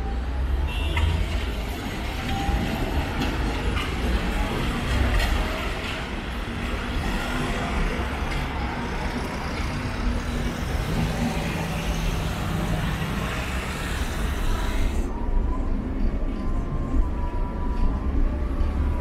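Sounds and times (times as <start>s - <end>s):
road traffic passing: 0.0s - 15.2s
muffled tram running: 0.0s - 19.0s.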